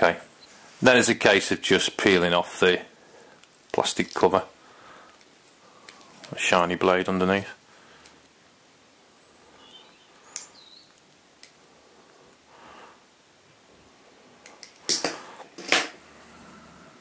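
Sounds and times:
plastic film peeling crinkles: 0:03.2 - 0:08.6
plastic film rustling crackles: 0:03.2 - 0:08.6.

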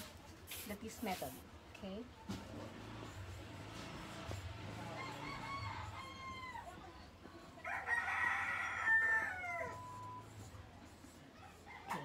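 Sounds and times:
rooster crowing: 0:04.9 - 0:06.8, 0:07.7 - 0:10.0.

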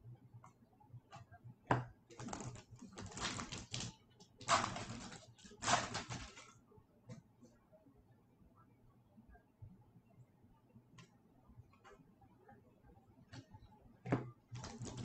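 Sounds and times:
foil wrapper tearing and crinkling: 0:02.2 - 0:06.4.

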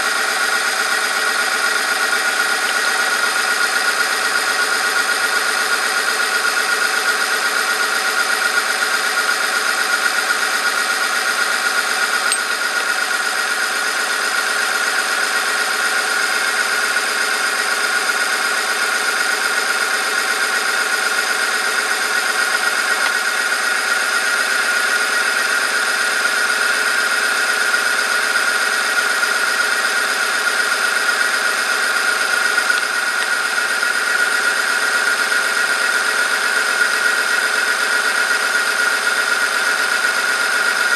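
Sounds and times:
electric motor hum: 0:00.0 - 0:06.0, 0:10.5 - 0:14.8, 0:20.9 - 0:24.8, 0:30.8 - 0:36.2.

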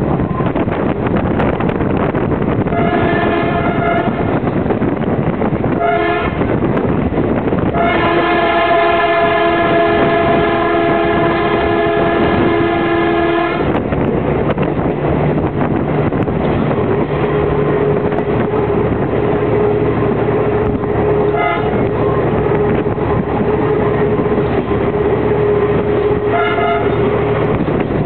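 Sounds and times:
constant whine: 0:00.0 - 0:28.0
diesel railcar running: 0:00.0 - 0:28.0
wind: 0:00.0 - 0:28.0
train horn toots: 0:02.7 - 0:04.4, 0:05.7 - 0:06.6, 0:07.6 - 0:13.8, 0:20.6 - 0:24.3, 0:25.5 - 0:27.3.

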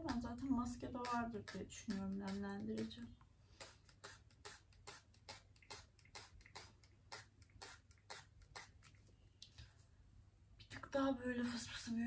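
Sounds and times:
spray bottle hissing: 0:03.6 - 0:08.8.

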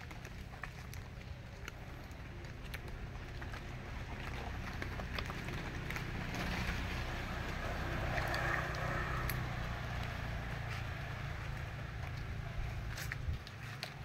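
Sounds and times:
footsteps on leafy brick path: 0:00.0 - 0:14.0.

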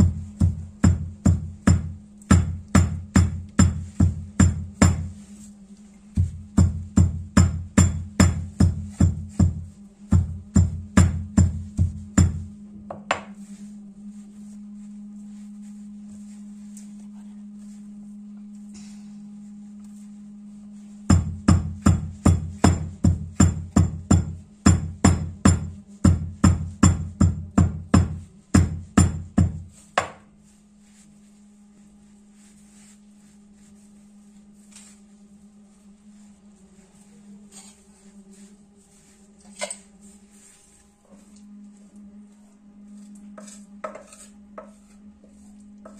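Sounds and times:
steady low hum: 0:00.0 - 0:45.9
stone pounder knocking on meat: 0:00.1 - 0:05.1, 0:06.2 - 0:13.3, 0:21.1 - 0:30.2.

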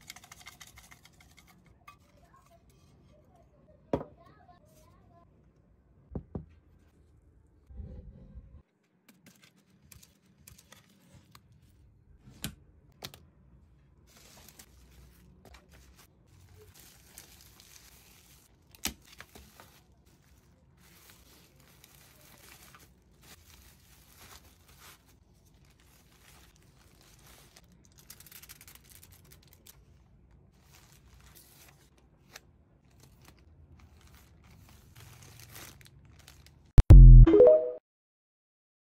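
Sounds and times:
bubble wrap crinkling: 0:14.1 - 0:36.8
packaging tearing: 0:32.3 - 0:36.7.

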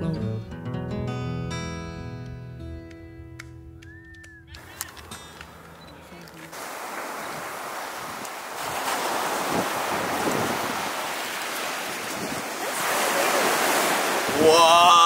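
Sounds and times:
surf breaking on beach: 0:06.4 - 0:15.0
wind on microphone: 0:06.6 - 0:15.0
loud voice: 0:14.4 - 0:15.0.

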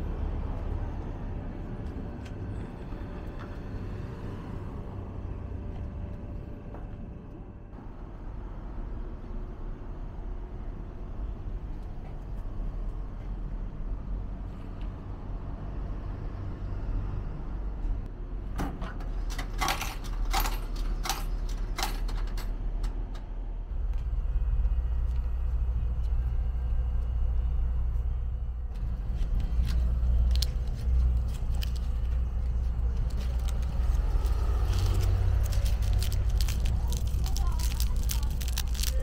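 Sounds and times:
low rumble: 0:23.0 - 0:39.0.

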